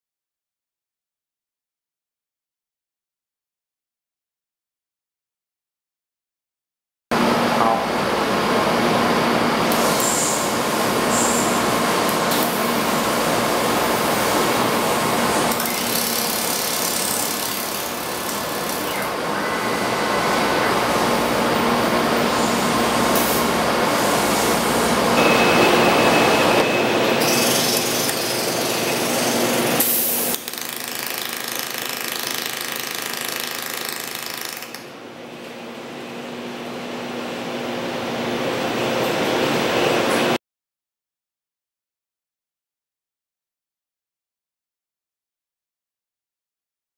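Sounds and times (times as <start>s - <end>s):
mechanical clicking and clattering: 30.3s - 34.9s.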